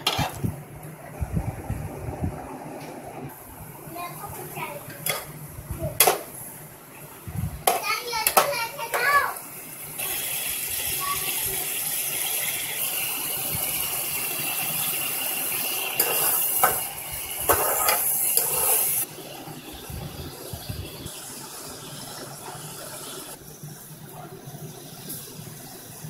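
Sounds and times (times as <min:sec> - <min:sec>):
metal spoon scraping a pan: 0:00.0 - 0:00.4, 0:16.0 - 0:16.8, 0:17.5 - 0:19.0
meat sizzling in hot oil: 0:08.7 - 0:24.0.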